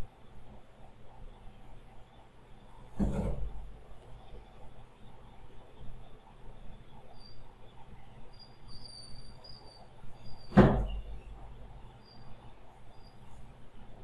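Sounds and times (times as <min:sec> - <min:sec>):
faint low hum: 0:00.0 - 0:14.0
faint high-pitched chirps: 0:04.0 - 0:14.0
sharp knock: 0:10.5 - 0:11.0.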